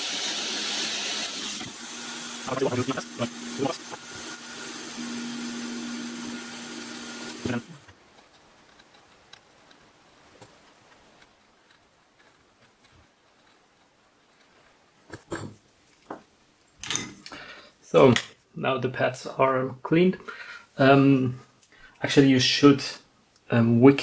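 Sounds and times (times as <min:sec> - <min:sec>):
hot air station hissing: 0:00.0 - 0:07.9.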